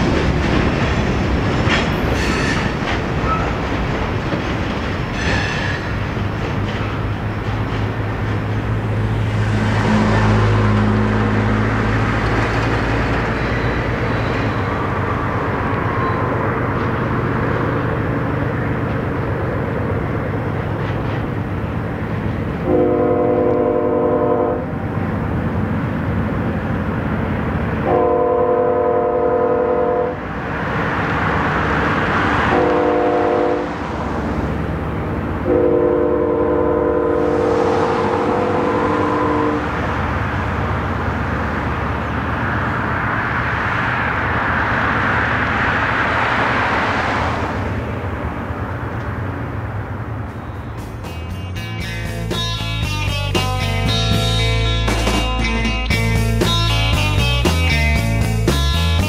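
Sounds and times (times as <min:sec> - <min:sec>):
distant locomotive air horn: 0:22.6 - 0:24.7, 0:27.8 - 0:30.2, 0:32.5 - 0:33.8, 0:35.4 - 0:40.0
low rumble: 0:36.5 - 0:40.6.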